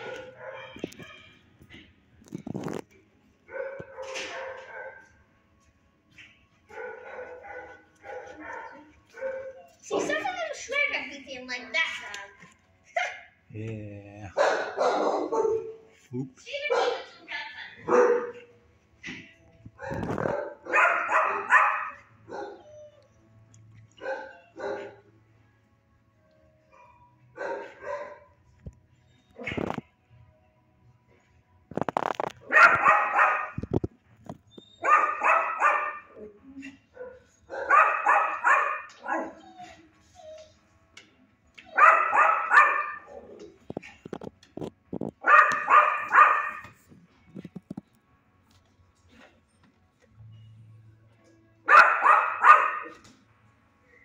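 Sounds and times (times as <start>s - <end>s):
dog barking: 0.0s - 0.9s, 3.5s - 5.2s, 6.7s - 9.7s, 14.3s - 15.9s, 16.6s - 18.5s, 19.8s - 22.6s, 24.0s - 25.1s, 26.8s - 28.4s, 32.5s - 33.6s, 34.8s - 39.4s, 41.7s - 43.4s, 45.2s - 46.7s, 51.7s - 53.0s.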